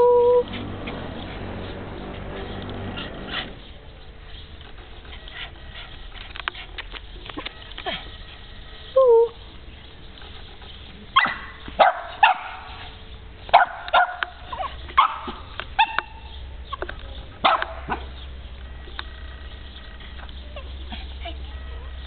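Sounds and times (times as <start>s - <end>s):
small dog barking: 11.2s - 12.8s, 13.5s - 16.2s, 17.4s - 18.1s.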